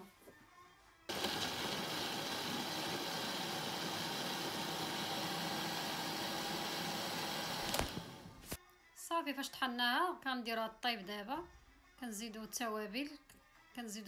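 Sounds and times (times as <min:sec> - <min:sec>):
blender motor running: 0:01.1 - 0:08.4.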